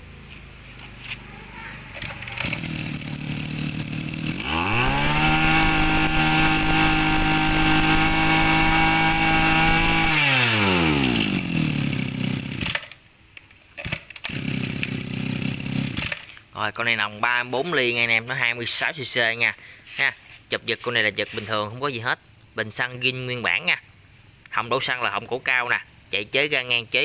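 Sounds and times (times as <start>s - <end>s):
brush cutter engine revving: 1.9s - 13.0s, 13.8s - 16.5s
pull cord start: 1.9s - 13.0s, 13.8s - 16.4s.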